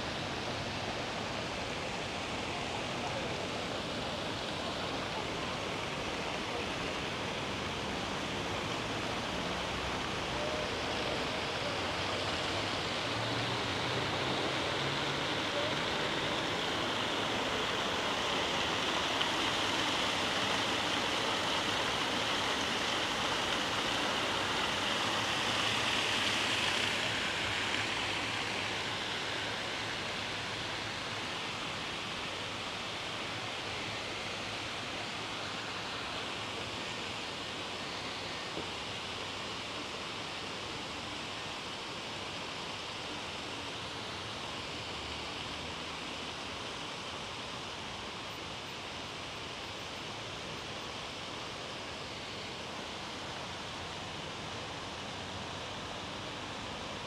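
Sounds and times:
fountain water splashing: 0.0 - 57.0.

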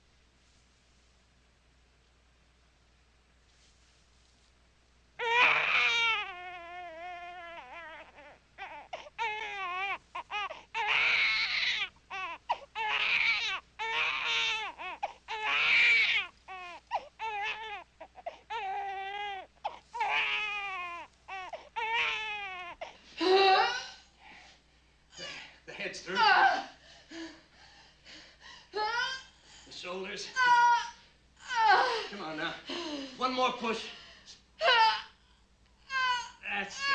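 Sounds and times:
baby crying: 5.2 - 23.9, 34.6 - 35.2, 35.8 - 36.9.

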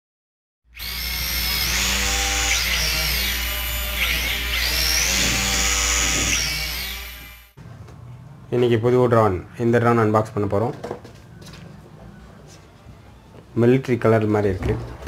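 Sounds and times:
toy drone motors whining: 0.8 - 7.5.

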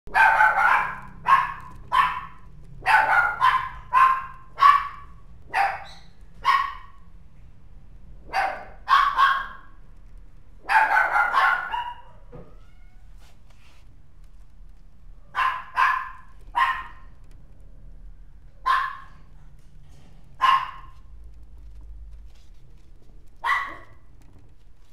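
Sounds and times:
puppy yapping: 0.1 - 7.0, 8.3 - 9.8, 10.6 - 12.8, 15.3 - 17.1, 18.6 - 19.3, 20.4 - 21.0, 23.4 - 24.0.

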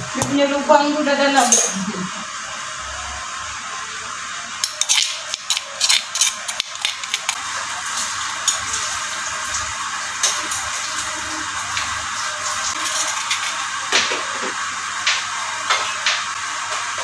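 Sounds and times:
metal spoon scraping stone mortar: 4.6 - 7.4.

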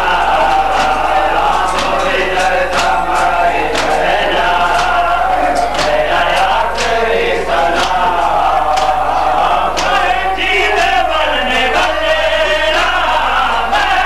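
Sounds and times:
crowd of men chanting: 0.0 - 14.0
chest-beating slaps: 0.2 - 10.1.

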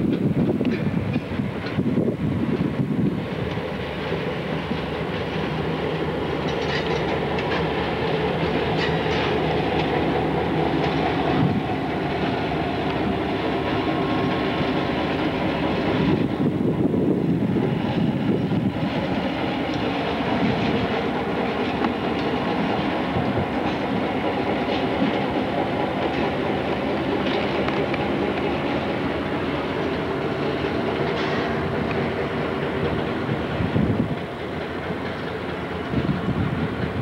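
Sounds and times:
train wheels rumbling: 0.0 - 37.0
wheels clicking over rail joints: 0.0 - 37.0
diesel engine drone: 1.3 - 37.0.

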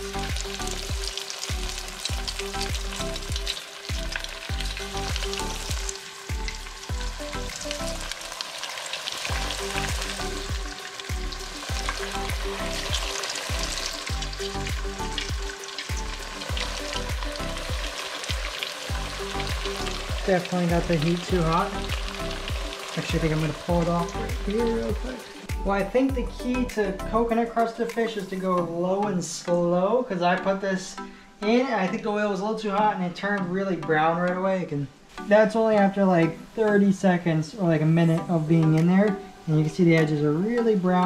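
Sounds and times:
fish deep-frying in oil: 0.0 - 25.7.

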